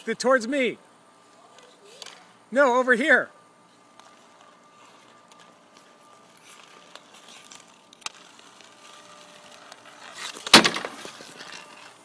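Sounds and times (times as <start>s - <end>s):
ice skate blades scraping: 3.7s - 12.0s.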